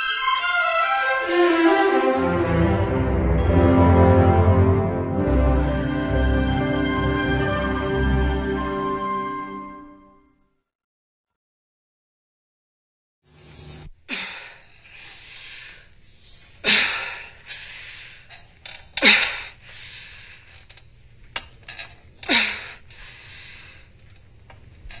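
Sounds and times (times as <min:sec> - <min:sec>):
woman breathing heavily: 0:14.1 - 0:18.4, 0:19.0 - 0:20.7, 0:22.3 - 0:23.9.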